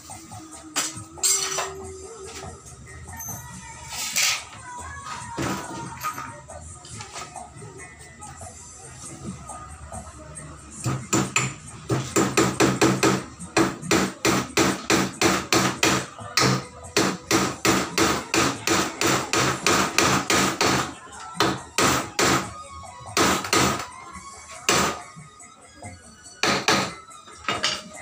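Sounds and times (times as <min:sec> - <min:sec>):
hammer knocking on wood: 0:10.9 - 0:20.8.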